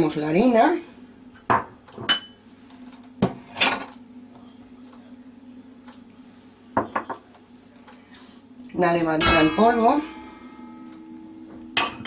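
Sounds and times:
glassy ring: 9.3 - 12.0.

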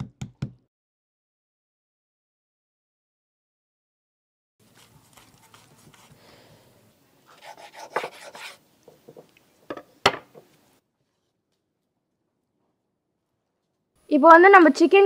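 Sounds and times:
knife carving chicken on board: 4.7 - 6.3, 7.2 - 9.2.

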